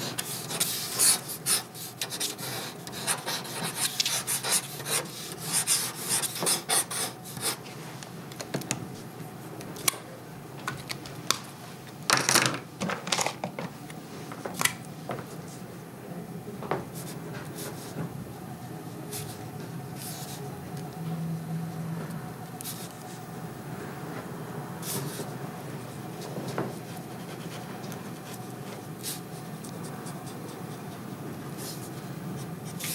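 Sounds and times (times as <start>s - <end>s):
pen scratching across paper: 0.1s - 7.6s.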